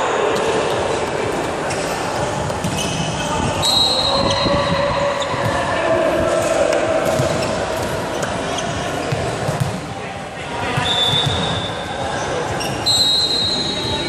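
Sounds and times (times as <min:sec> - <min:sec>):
shoes squeaking: 0:00.6 - 0:05.6, 0:07.1 - 0:09.8, 0:10.6 - 0:14.0
volleyball bouncing on wooden floor: 0:09.0 - 0:09.8.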